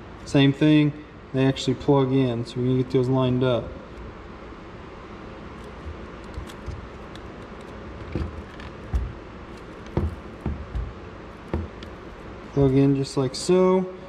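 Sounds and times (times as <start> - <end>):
plastic parts clicking and tapping: 5.6 - 12.0.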